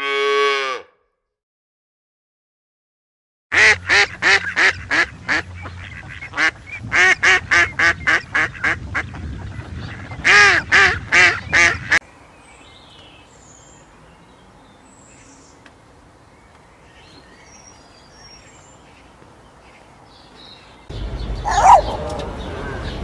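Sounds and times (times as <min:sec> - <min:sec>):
ducks quacking: 0:03.5 - 0:12.0, 0:21.4 - 0:23.0
faint birdsong: 0:11.2 - 0:23.0.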